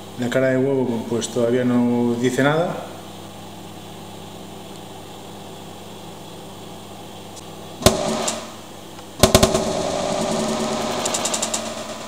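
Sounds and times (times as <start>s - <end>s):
microwave oven humming: 0.0s - 12.0s
egg bursting with a bang: 7.8s - 8.6s
rapid crackling: 9.2s - 12.0s.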